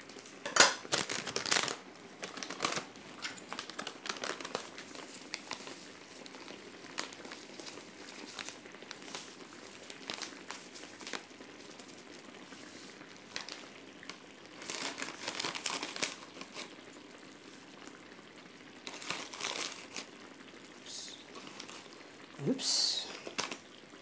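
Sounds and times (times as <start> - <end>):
plastic sachet crinkling: 0.0 - 12.1, 13.2 - 16.9, 18.8 - 20.2, 21.3 - 22.0, 23.0 - 23.8.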